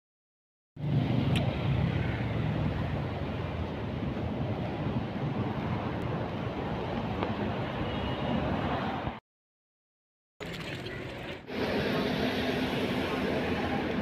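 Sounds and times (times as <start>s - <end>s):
city road traffic: 0.8s - 9.2s, 11.4s - 14.0s.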